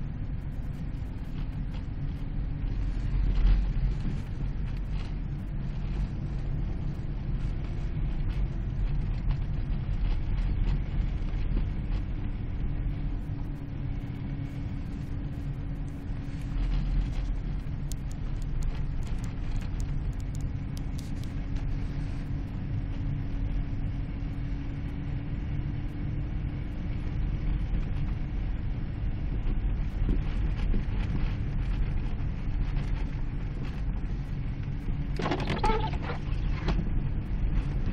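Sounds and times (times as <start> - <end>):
steady drone: 0.0 - 31.3
car engine and tyre rumble: 0.0 - 37.9.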